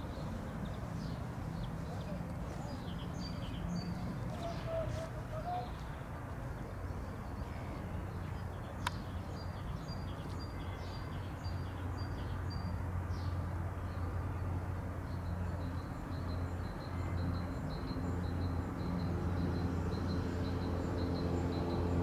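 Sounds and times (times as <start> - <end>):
distant turboprop aircraft drone: 11.7 - 22.0.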